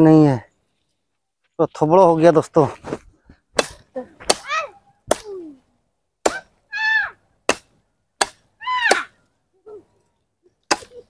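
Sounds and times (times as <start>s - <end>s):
knife chopping dry branch: 3.5s - 5.4s, 6.2s - 6.6s, 7.4s - 9.1s, 10.6s - 11.0s.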